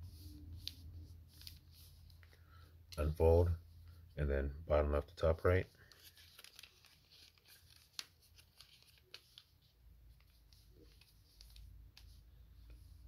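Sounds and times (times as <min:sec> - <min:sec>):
paper rustling and crinkling: 0:00.5 - 0:02.3, 0:05.8 - 0:12.8
soft paper ticks: 0:10.2 - 0:12.8.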